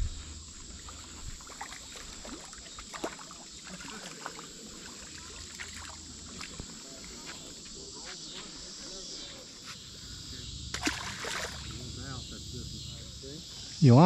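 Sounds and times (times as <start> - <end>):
insect chorus: 0.0 - 14.0
water ticks and splashes: 0.5 - 7.9, 10.7 - 11.8.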